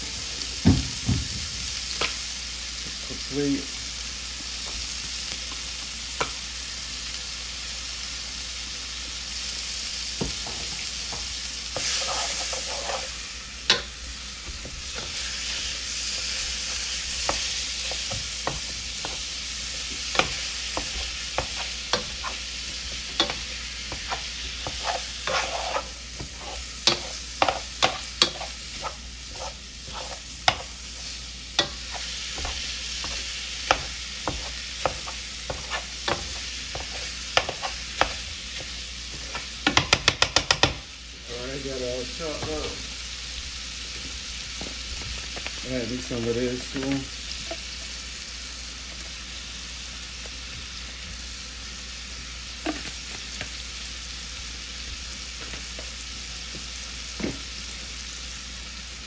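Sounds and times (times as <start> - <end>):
meat sizzling in a skillet: 0.0 - 59.0
spatula scraping and tapping pan: 10.2 - 13.9, 14.5 - 40.9, 42.3 - 42.8.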